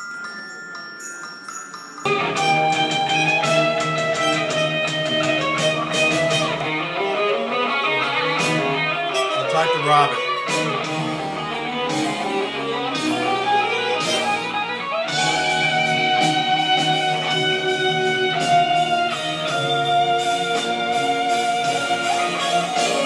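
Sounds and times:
electric guitar with orchestra: 0:02.1 - 0:23.0.

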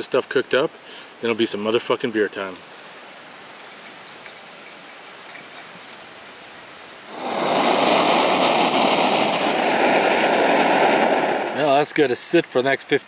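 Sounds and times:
water trickling into metal pot: 0:03.5 - 0:07.1.

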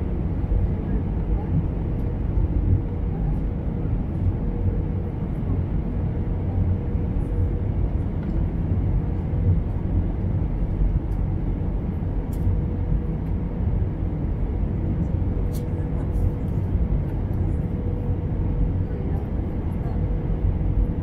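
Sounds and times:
jet engine rumble: 0:00.0 - 0:21.0.

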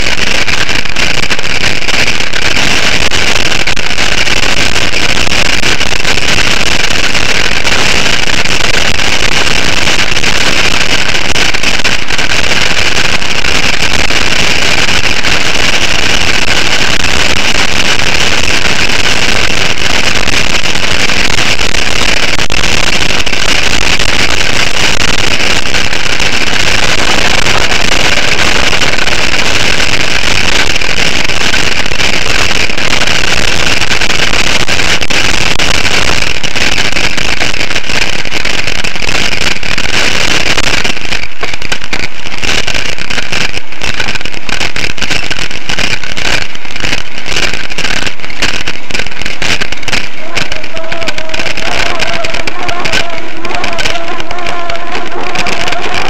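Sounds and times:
wind rush on microphone: 0:00.0 - 0:56.0
bicycle rolling rumble: 0:23.0 - 0:33.8.

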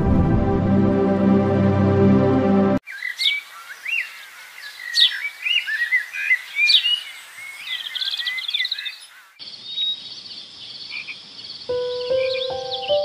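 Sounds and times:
birds chirping and trilling: 0:02.8 - 0:13.0.

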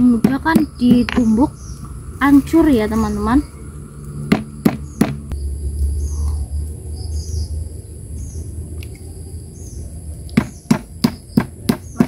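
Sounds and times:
stone pestle pounding beans: 0:00.0 - 0:01.3
low rumble: 0:00.0 - 0:11.0
faint bird chirps: 0:00.6 - 0:12.0.

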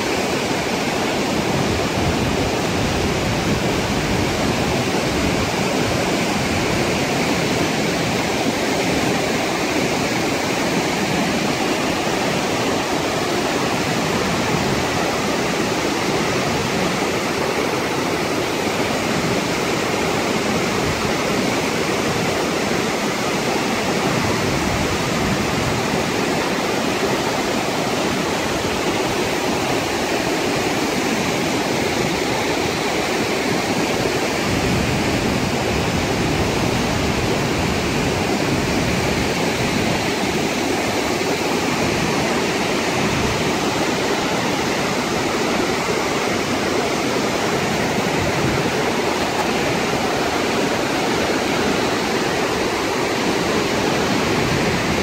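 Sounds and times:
waterfall pouring: 0:37.4 - 0:55.0.

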